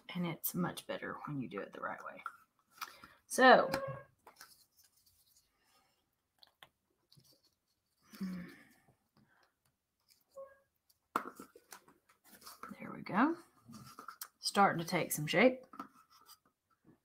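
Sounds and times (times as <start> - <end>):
person sighing: 8.1 - 8.8.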